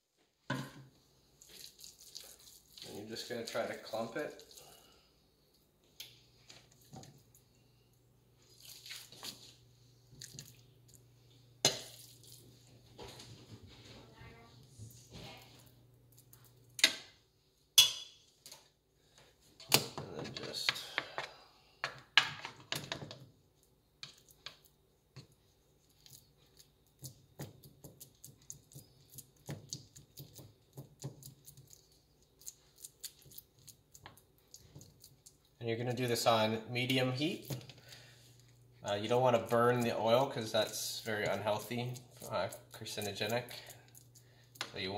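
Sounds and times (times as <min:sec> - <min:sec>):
faint steady hum: 0:00.7 - 0:44.9
batter squishing and scraping: 0:01.3 - 0:05.0, 0:08.4 - 0:16.6, 0:24.0 - 0:44.9.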